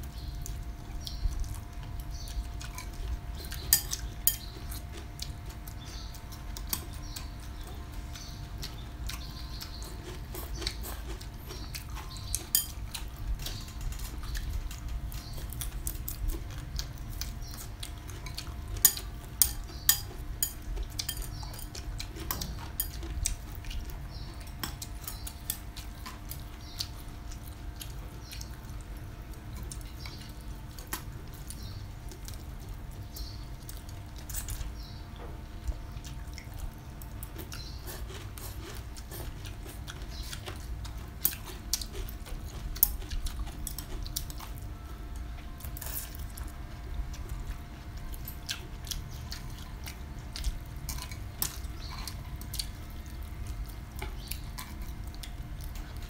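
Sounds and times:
chopsticks clicking on ceramic bowls: 3.6 - 4.9, 18.8 - 23.0.

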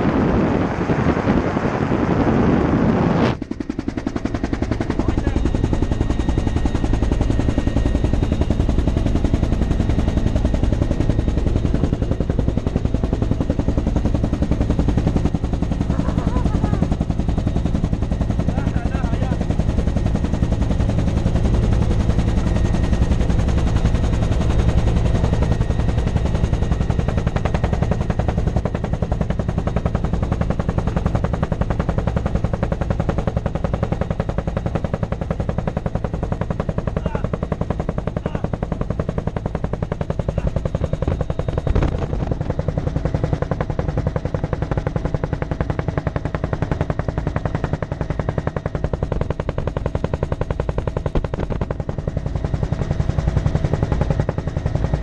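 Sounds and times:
wind noise: 0.0 - 9.7, 40.6 - 42.8
helicopter rotor chopping: 0.0 - 55.0.

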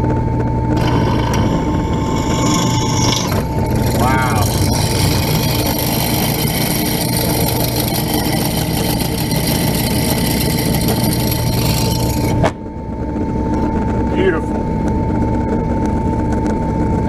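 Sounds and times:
drill bit drilling through metal pipe: 0.8 - 12.4
drill press motor humming: 0.8 - 12.6.

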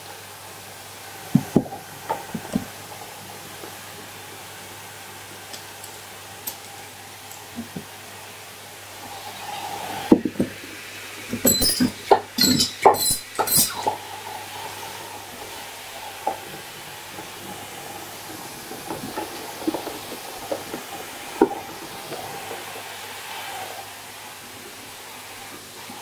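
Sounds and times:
vacuum cleaner running: 7.5 - 26.0.

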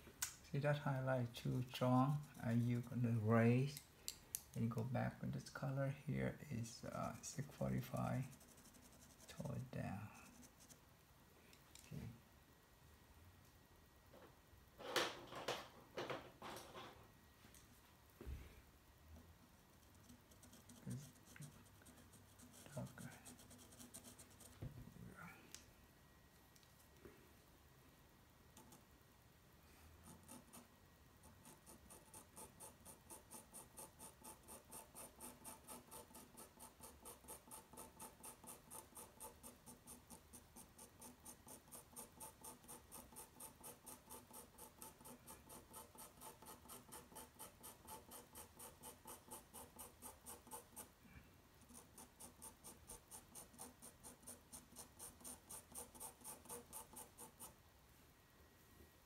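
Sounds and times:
pencil rubbing on paper: 1.6 - 3.3, 6.6 - 10.8, 19.8 - 24.6, 30.0 - 51.0, 51.6 - 57.6.

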